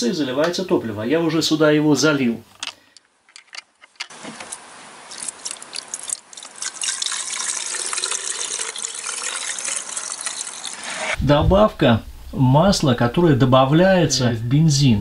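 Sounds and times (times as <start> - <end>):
liquid pouring into tank: 5.1 - 11.2.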